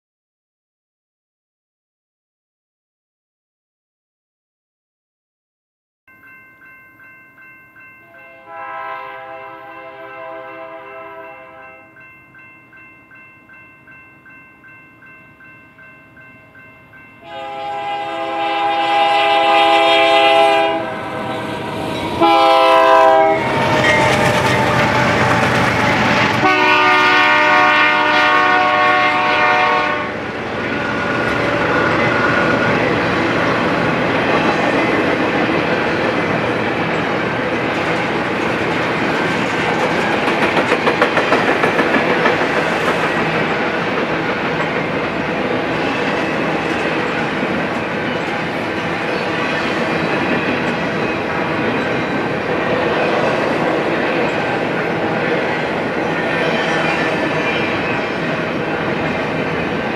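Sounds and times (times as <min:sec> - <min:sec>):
locomotive air horn blasts: 0:08.2 - 0:11.9, 0:17.2 - 0:30.2
train wheels rumbling on rails: 0:17.4 - 0:59.9.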